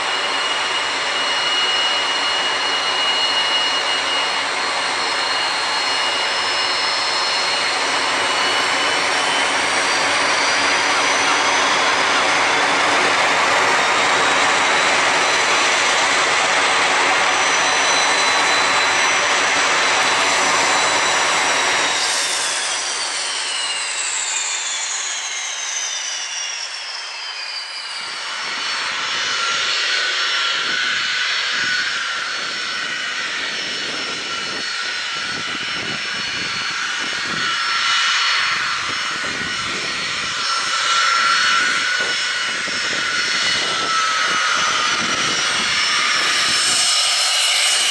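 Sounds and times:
jet engine whining: 0:00.0 - 0:47.9
jets taxiing: 0:00.0 - 0:47.9
wind rumbling on microphone: 0:30.4 - 0:47.9.

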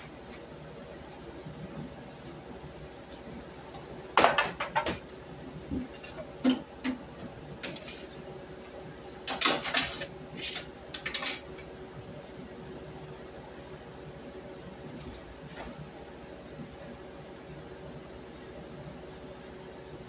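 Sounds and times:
metal utensil scraping a skillet: 0:09.8 - 0:11.4.

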